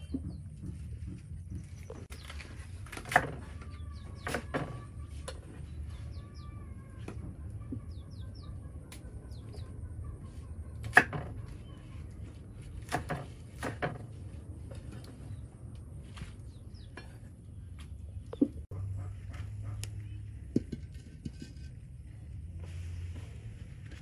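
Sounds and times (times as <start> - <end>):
birds chirping: 0.0 - 13.0, 14.8 - 20.3.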